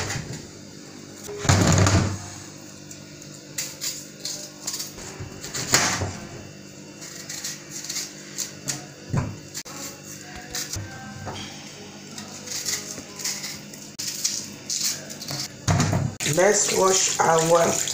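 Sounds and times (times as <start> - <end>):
knife scraping yam skin: 7.0 - 8.8.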